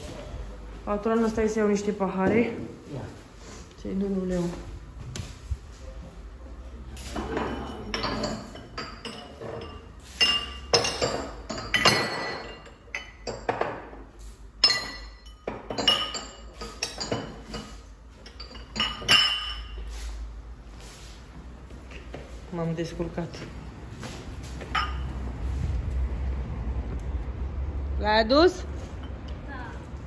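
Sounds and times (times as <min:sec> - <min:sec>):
drinking glasses clinking: 0:07.3 - 0:13.8, 0:14.6 - 0:19.9, 0:24.7 - 0:25.2.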